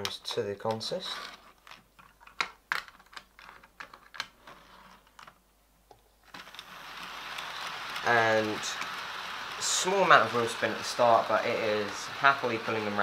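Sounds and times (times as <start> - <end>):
model train motor whirring: 6.3 - 13.0.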